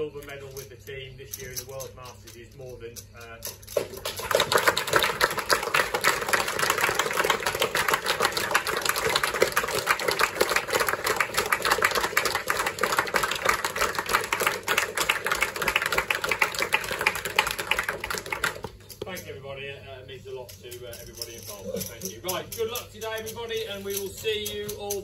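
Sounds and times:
crowd applauding: 3.8 - 18.8.

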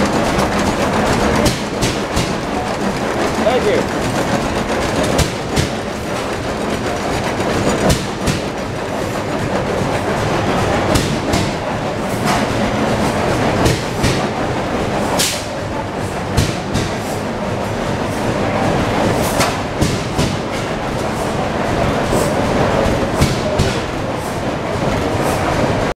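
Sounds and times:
sharp engine clacks: 0.0 - 17.3
stationary engines clattering: 0.0 - 25.9.

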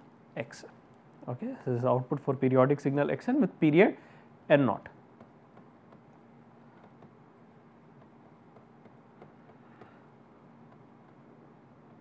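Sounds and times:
faint steady hum: 0.0 - 12.0
stylus tapping a tablet: 5.1 - 12.0.

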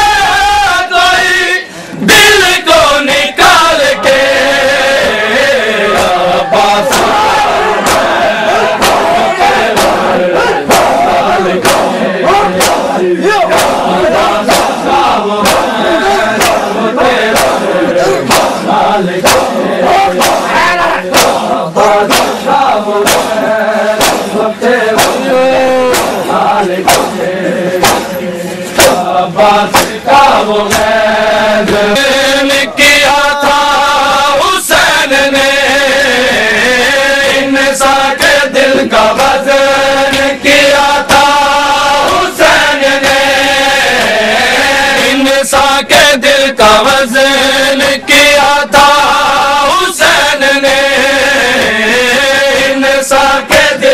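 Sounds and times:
men chanting in unison: 0.0 - 53.9
hands beating on chests: 5.9 - 28.2, 28.8 - 29.1, 29.7 - 31.0.

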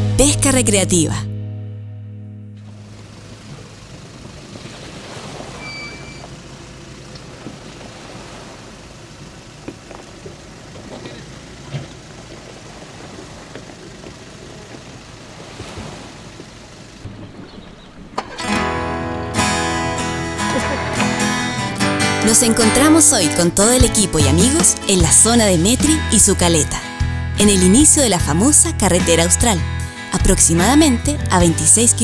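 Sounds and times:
acoustic guitar music: 0.0 - 7.5, 16.4 - 32.0.

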